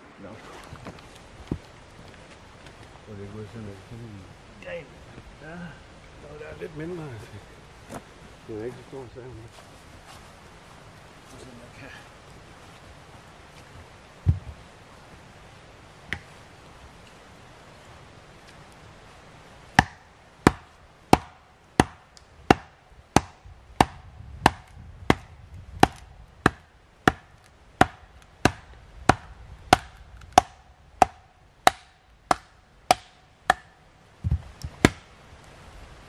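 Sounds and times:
dull thuds: 14.2s - 14.6s.

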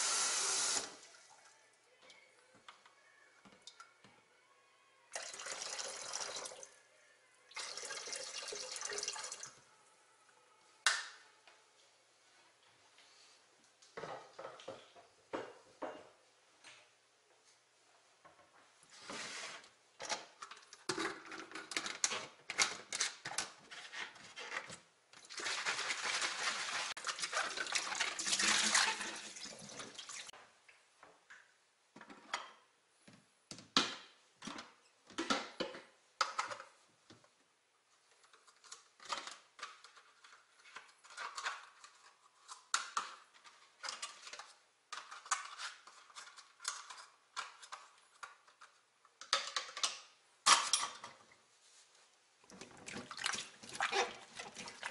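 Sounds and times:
small water splashes: 52.7s - 54.9s.

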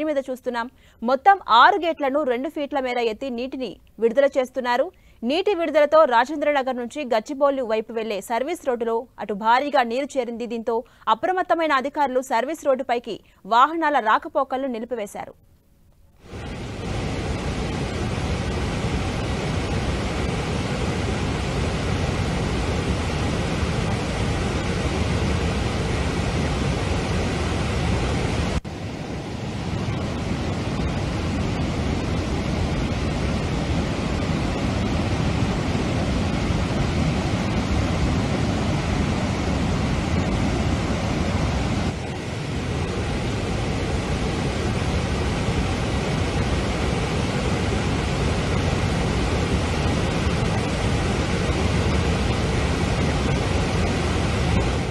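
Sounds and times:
floodwater rushing through spillway: 16.3s - 54.9s.

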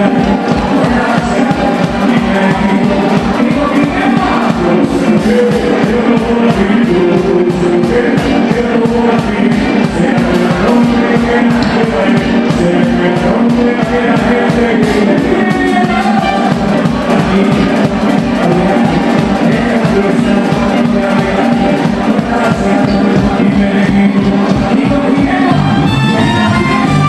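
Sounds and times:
drum kit steady beat: 0.0s - 27.0s
trumpet playing: 9.7s - 21.8s, 25.4s - 27.0s.

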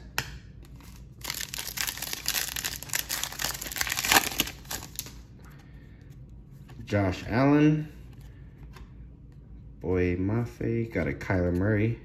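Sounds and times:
foil wrapper tearing and crinkling: 0.8s - 5.2s.

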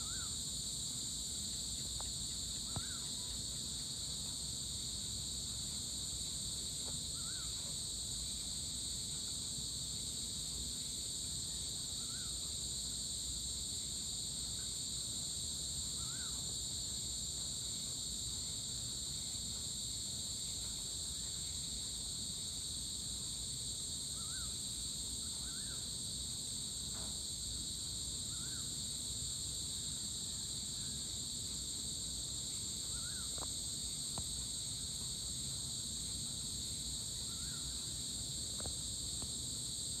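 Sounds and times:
insect chorus buzzing: 0.0s - 40.0s
faint bird chirps: 2.6s - 3.3s.

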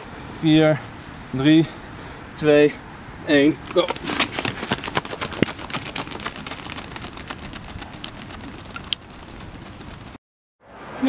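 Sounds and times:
footfalls sprinting on track: 3.5s - 10.2s.

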